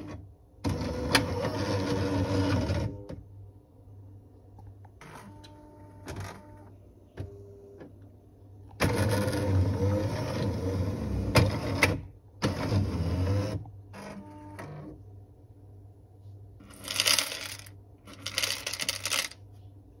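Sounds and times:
coffee grinder running: 16.7 - 19.4.

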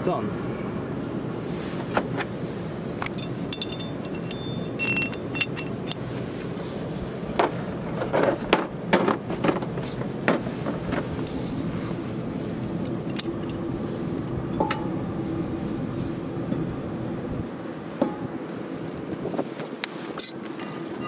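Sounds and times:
steel tool parts clinking: 3.0 - 6.0, 12.8 - 13.6
metallic ringing: 3.1 - 6.0.

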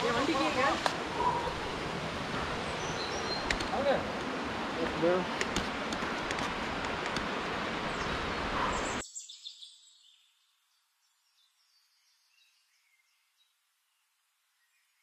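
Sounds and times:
rush of outdoor noise: 0.0 - 9.9.

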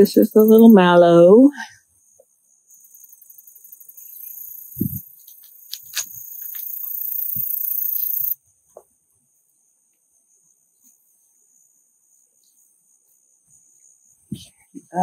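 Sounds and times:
high-pitched insect buzzing: 2.0 - 8.4.

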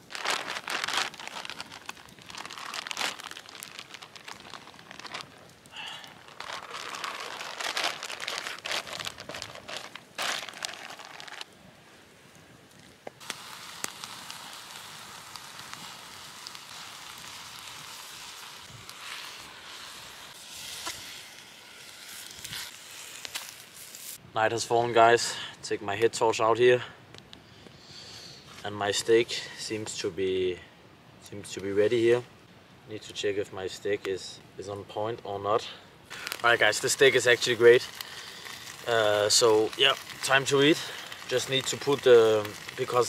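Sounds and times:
fire crackling: 0.0 - 34.9, 35.5 - 43.0
vegetables sizzling in a pan: 13.2 - 24.2.

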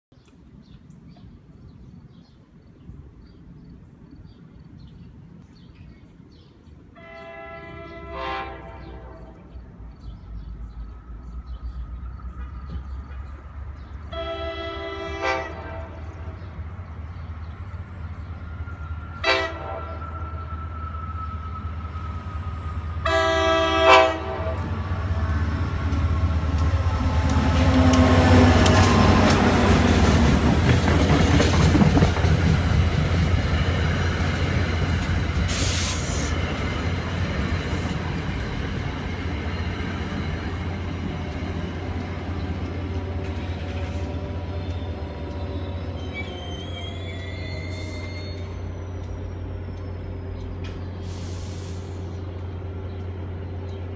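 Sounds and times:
locomotive horn: 7.0 - 9.5, 14.1 - 16.4, 19.2 - 20.5, 23.0 - 25.4
wheel and rail clatter: 25.8 - 35.6.

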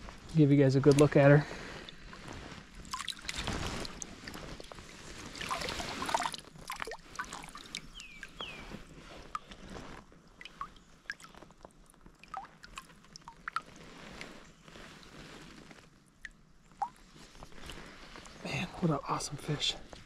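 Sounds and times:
creek water splashing: 0.7 - 18.4
water dripping into stream: 2.8 - 4.1, 5.3 - 9.6, 10.2 - 14.4, 16.2 - 18.4.

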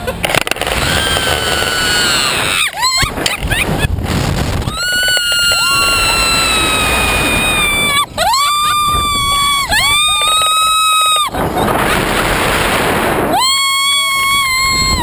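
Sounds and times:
riders screaming: 0.6 - 3.6, 4.6 - 11.6, 13.3 - 15.0.

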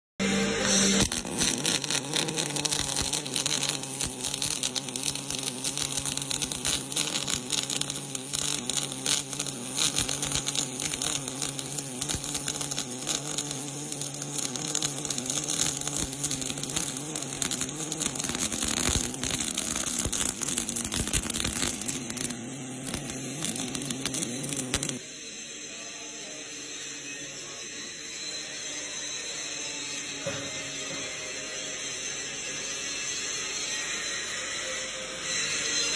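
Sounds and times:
welding arc crackling buzz: 0.2 - 25.1.

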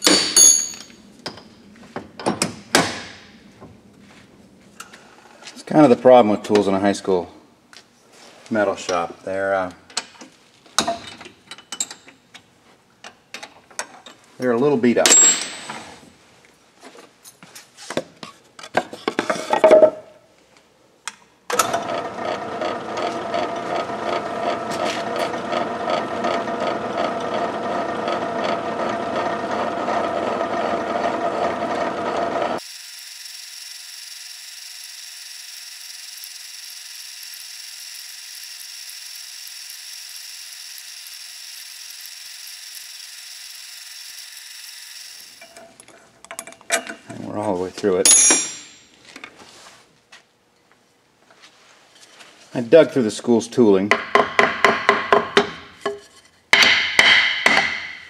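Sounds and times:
lathe drill boring through metal: 21.7 - 45.6.

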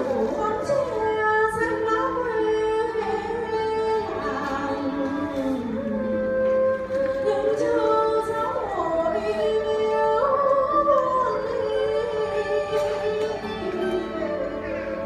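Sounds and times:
string accompaniment: 0.0 - 15.0
woman singing into a microphone: 0.0 - 15.0.

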